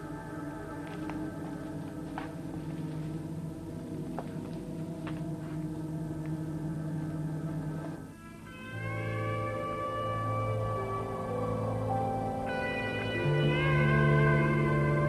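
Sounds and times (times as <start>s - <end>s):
science fiction drone: 8.7s - 15.0s.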